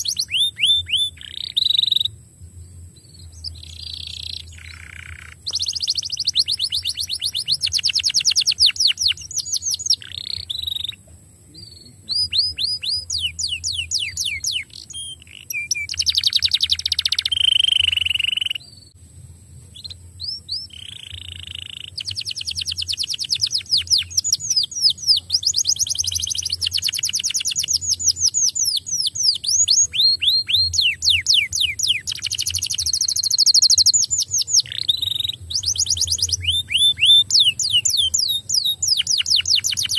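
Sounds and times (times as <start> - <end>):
canary singing trills: 0.0 - 19.0, 19.6 - 39.9
faint low hum: 0.0 - 39.9.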